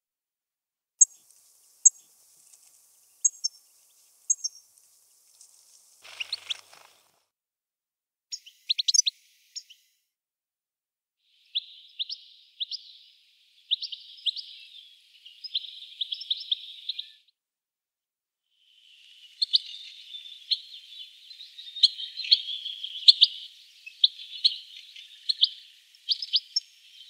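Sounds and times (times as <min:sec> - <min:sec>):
goldfinch singing: 0:03.0 - 0:04.7, 0:06.0 - 0:07.0, 0:19.1 - 0:27.0.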